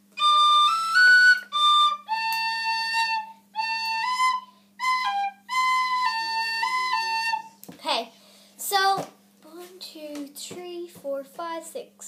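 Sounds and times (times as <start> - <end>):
tin whistle playing slow melody: 0.2 - 7.6.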